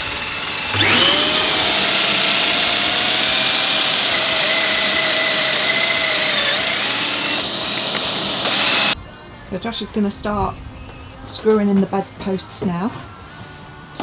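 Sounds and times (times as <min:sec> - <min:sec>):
cordless drill boring wood: 0:00.0 - 0:09.0
vacuum whining: 0:00.0 - 0:09.0.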